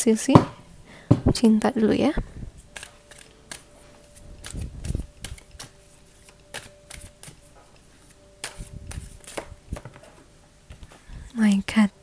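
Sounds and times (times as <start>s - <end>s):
cards being shuffled: 2.6s - 11.1s.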